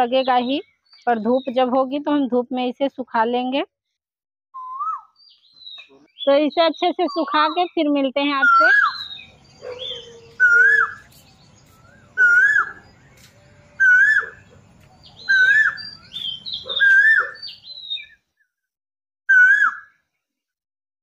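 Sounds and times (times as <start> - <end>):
songbird whistled phrase: 4.6 - 5.2, 8.4 - 14.4, 15.2 - 18.1
bird chirps: 4.6 - 18.3.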